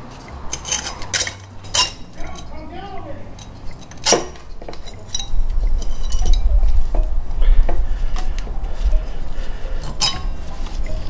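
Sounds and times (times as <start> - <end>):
low handling rumble: 0.0 - 11.0
metallic clinks and knocks: 0.1 - 2.5, 3.3 - 11.0.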